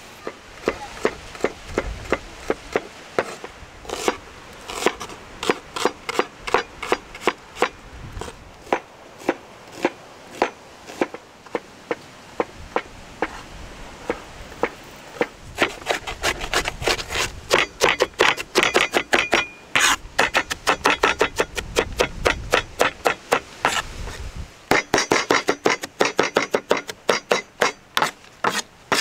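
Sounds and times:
knife chopping on wooden board: 24.7 - 29.0.

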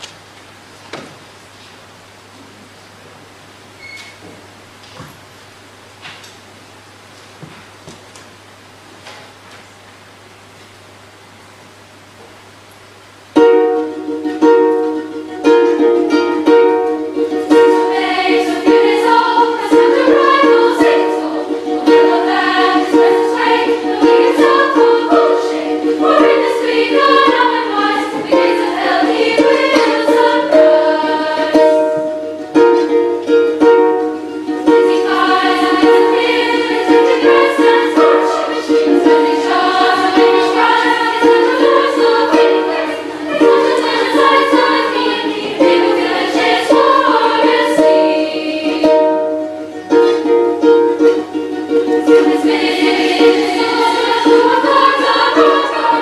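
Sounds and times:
girls choir singing: 13.4 - 56.0
harp plucked notes and chords: 48.8 - 52.3.

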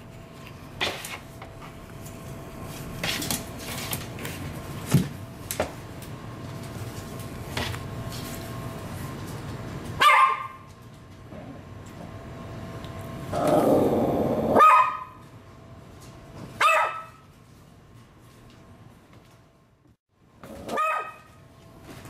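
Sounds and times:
dog barking: 10.0 - 10.6, 14.6 - 15.2, 16.6 - 17.2, 20.7 - 21.3.

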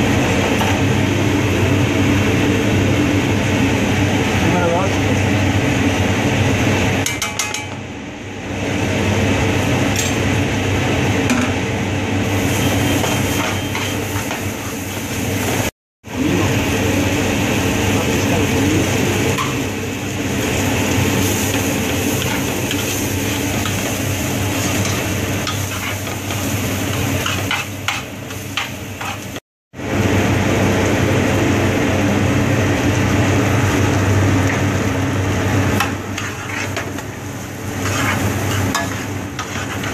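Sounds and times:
steady mechanical hum: 0.0 - 39.9
rice frying in oil: 11.8 - 39.9
metal spoon scraping a pan: 12.9 - 14.4, 24.5 - 29.4, 35.8 - 37.0, 37.7 - 39.9.

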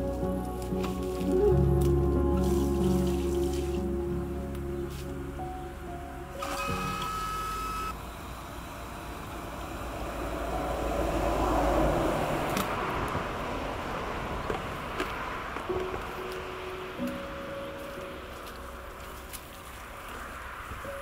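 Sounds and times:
music with held tones: 0.0 - 7.9, 15.7 - 19.8
motor vehicle rumble: 0.0 - 21.0.

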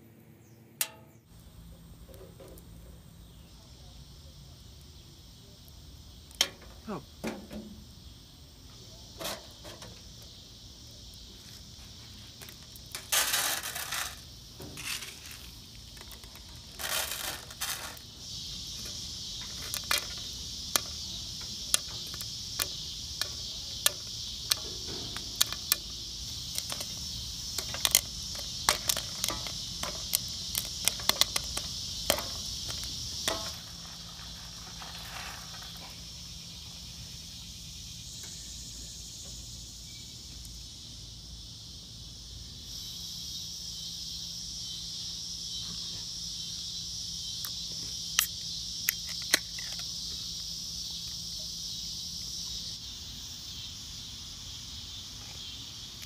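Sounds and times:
steady high hiss: 0.0 - 56.0
popcorn popping: 0.8 - 5.0, 5.6 - 8.1, 9.0 - 36.7, 47.4 - 50.1
kernels rattling in pan: 12.6 - 18.1, 18.7 - 36.0.

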